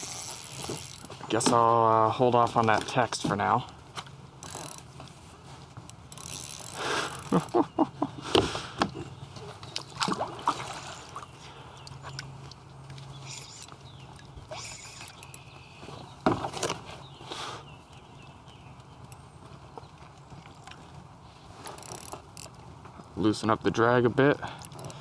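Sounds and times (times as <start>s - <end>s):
fishing reel clicking: 0.0s - 1.0s, 4.4s - 4.9s, 6.0s - 7.4s, 13.2s - 13.7s, 14.5s - 15.5s, 21.7s - 22.6s, 24.6s - 25.0s.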